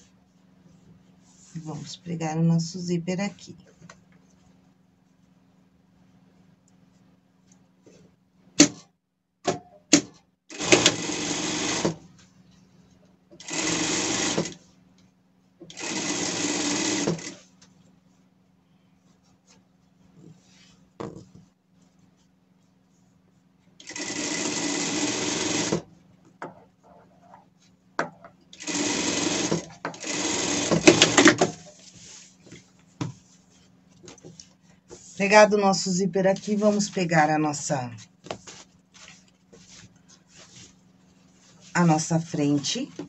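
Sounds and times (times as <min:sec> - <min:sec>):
sewing machine stitching: 0:10.5 - 0:12.0, 0:13.4 - 0:14.6, 0:15.7 - 0:17.4, 0:23.8 - 0:25.9, 0:28.5 - 0:31.6.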